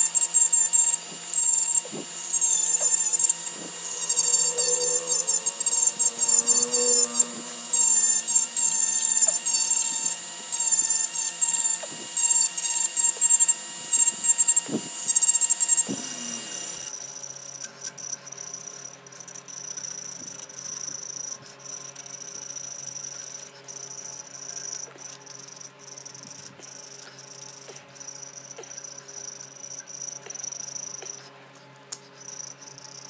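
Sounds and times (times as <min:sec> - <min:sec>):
rotary tool grinding wood: 0:00.0 - 0:16.9
steady high whine: 0:00.0 - 0:16.9.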